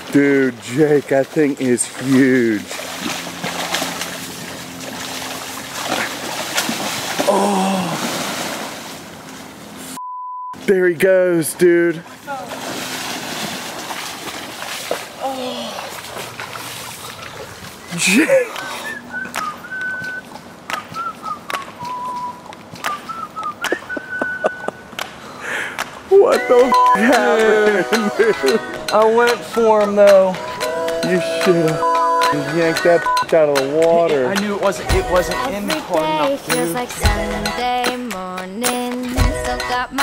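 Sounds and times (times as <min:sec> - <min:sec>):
water splashing: 0:00.0 - 0:10.0, 0:11.6 - 0:38.3
whistled tune: 0:18.6 - 0:24.9, 0:26.4 - 0:28.6, 0:30.4 - 0:32.4
person shouting: 0:26.1 - 0:28.5.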